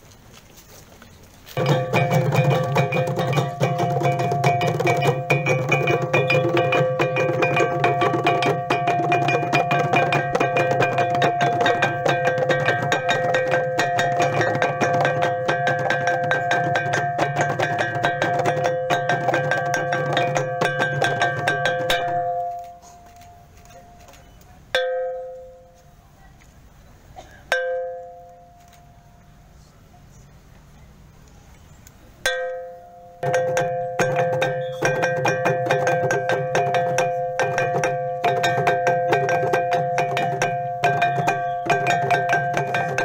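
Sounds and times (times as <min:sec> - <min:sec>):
small gongs beaten rapidly: 0:01.6 - 0:22.8, 0:24.8 - 0:25.8, 0:27.5 - 0:28.6, 0:32.2 - 0:43.0.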